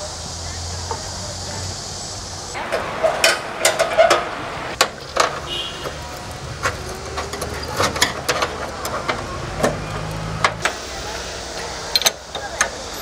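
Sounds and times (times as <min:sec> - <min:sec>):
tractor engine running: 0:00.0 - 0:13.0
metallic clicks and knocks: 0:02.7 - 0:10.8.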